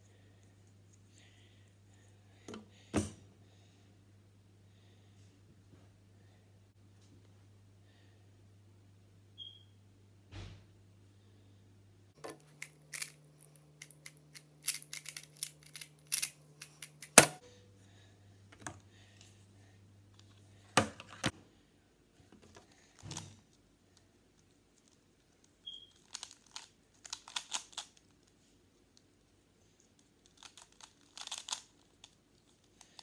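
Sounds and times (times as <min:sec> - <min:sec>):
plastic puzzle clicks: 0:12.2 - 0:13.2, 0:13.8 - 0:17.4, 0:30.3 - 0:32.1.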